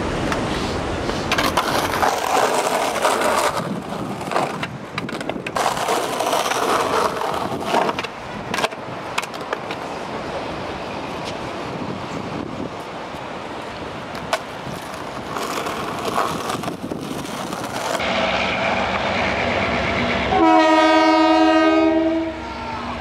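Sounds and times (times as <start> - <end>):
skateboard wheels rolling: 0.0 - 18.0
skateboard clacking on landing: 1.3 - 9.9.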